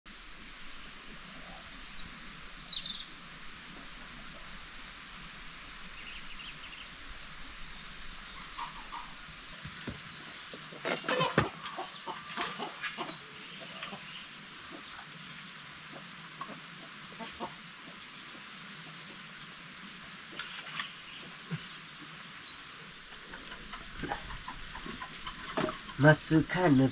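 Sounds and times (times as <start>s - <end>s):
chicken clucking and squawking: 11.0s - 14.1s, 15.9s - 18.0s, 23.1s - 26.0s.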